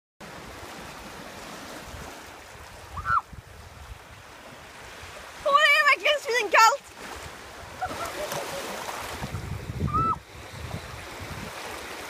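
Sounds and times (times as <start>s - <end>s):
small waves lapping on shore: 0.2s - 12.0s
wind on microphone: 1.8s - 5.5s, 7.0s - 12.0s
high-pitched cry: 3.0s - 3.2s.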